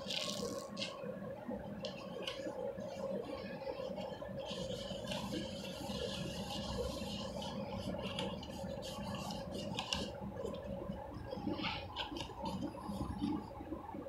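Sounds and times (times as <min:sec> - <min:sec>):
wet sponge squeezing and scrubbing: 0:04.4 - 0:10.1.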